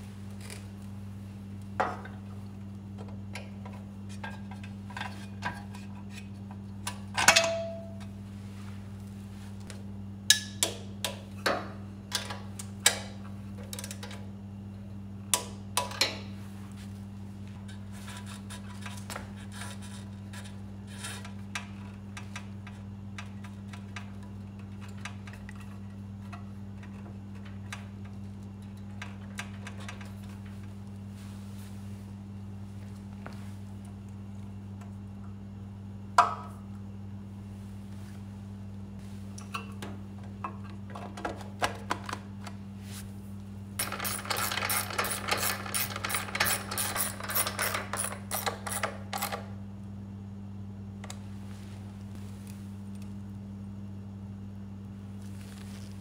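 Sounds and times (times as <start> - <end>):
steady low hum: 0.0 - 56.0
metal parts clinking: 43.8 - 49.4.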